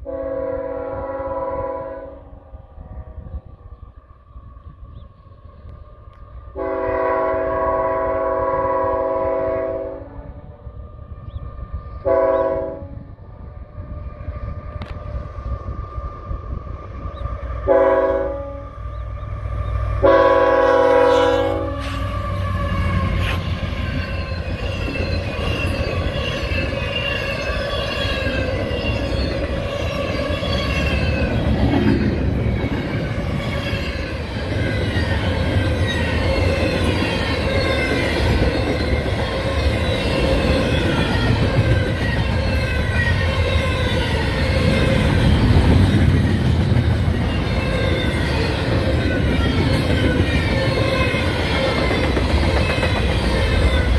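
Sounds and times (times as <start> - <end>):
locomotive air horn blasts: 0.0 - 2.2, 6.6 - 10.4, 12.0 - 13.1, 17.6 - 18.8, 20.0 - 24.0
train wheels clattering on rails: 21.8 - 53.9.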